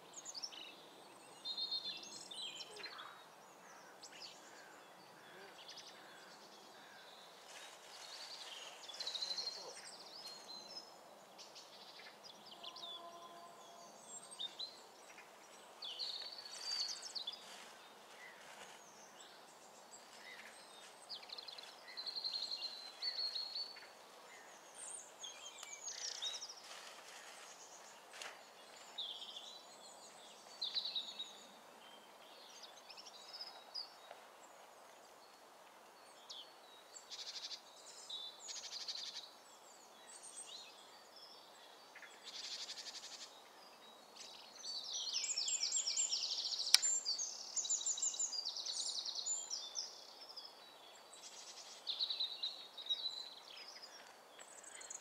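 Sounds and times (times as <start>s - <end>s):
faint steady hiss: 0.0s - 55.0s
songbirds singing and calling: 0.0s - 55.0s
sharp click: 46.7s - 47.0s.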